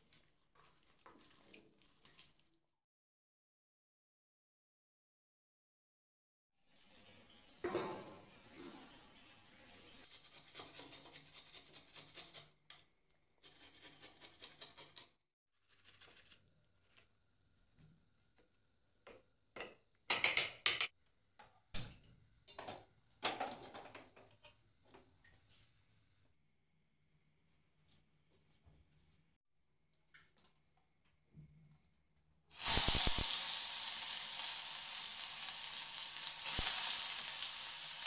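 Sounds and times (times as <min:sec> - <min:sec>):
onion rasping on grater: 0:10.1 - 0:12.6.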